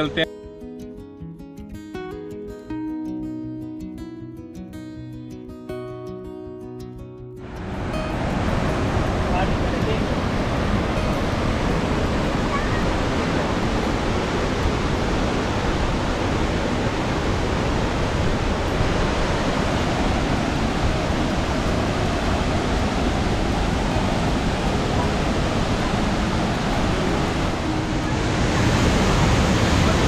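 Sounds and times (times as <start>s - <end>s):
waterfall roaring: 7.4s - 30.0s.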